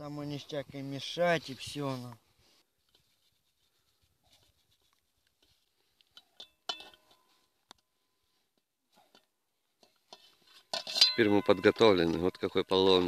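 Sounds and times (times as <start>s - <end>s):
ladle clinking on metal pot: 6.2s - 7.3s, 9.9s - 13.0s.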